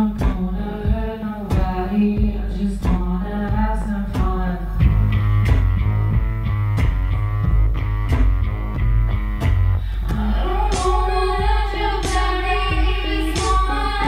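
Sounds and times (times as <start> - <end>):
woman singing into microphone: 0.0 - 4.8, 10.0 - 14.0
electronic backing with beat: 0.0 - 14.0
instrumental riff over bass note: 4.7 - 14.0.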